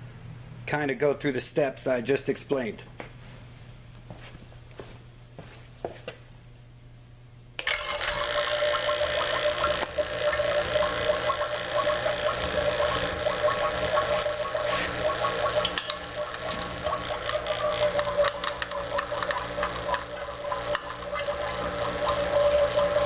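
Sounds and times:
vacuum pump running: 7.6s - 23.0s.

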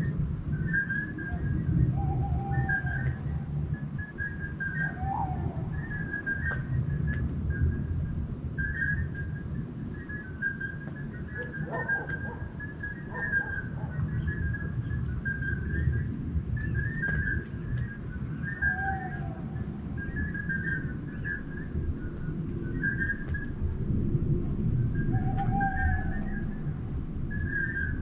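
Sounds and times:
high whistle-like chirps: 0.6s - 8.0s, 8.6s - 24.0s, 25.0s - 28.0s
rising and falling call: 11.3s - 14.8s, 18.3s - 23.6s, 25.0s - 28.0s
low steady rumble: 12.4s - 28.0s.

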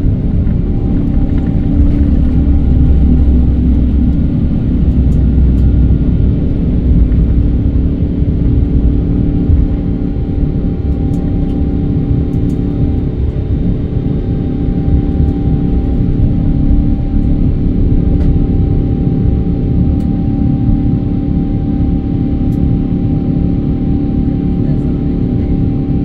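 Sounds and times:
airliner engines rumbling: 0.0s - 26.0s.

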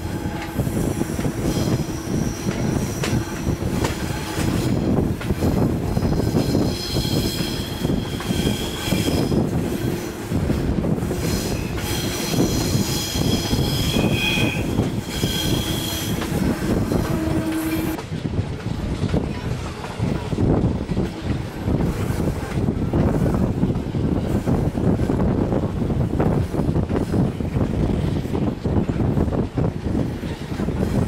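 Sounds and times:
train wheels rumbling on track: 0.0s - 31.0s
wheel flanges squealing: 11.2s - 18.0s.

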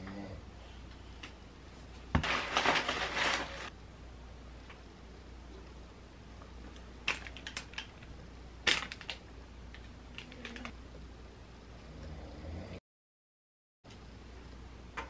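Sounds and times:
plastic bag crinkling: 2.1s - 3.7s, 7.0s - 10.7s.

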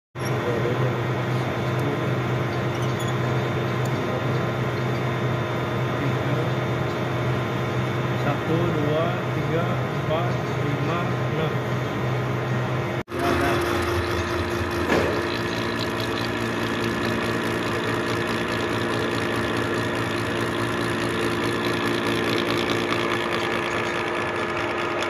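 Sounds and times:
milling machine cutting metal: 13.1s - 25.0s.

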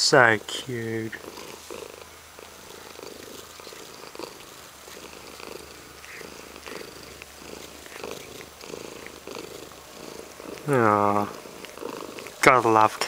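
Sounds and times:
cat purring: 0.0s - 13.0s.

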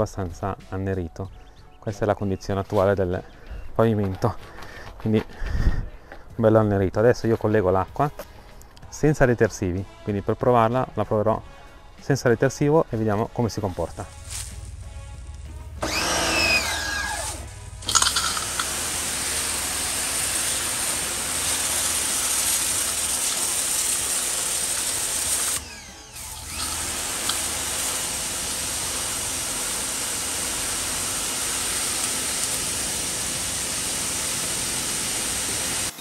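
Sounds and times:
pressure washer motor humming: 14.0s - 36.0s
water jet hissing on concrete: 14.0s - 36.0s.

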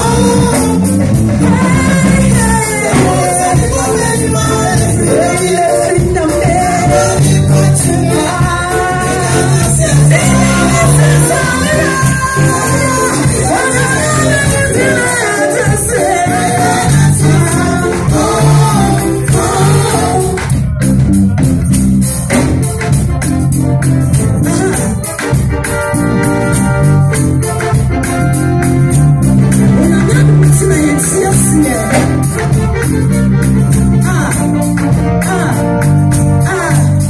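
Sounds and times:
band with keyboard and percussion: 0.0s - 37.0s
woman singing: 1.4s - 18.7s.

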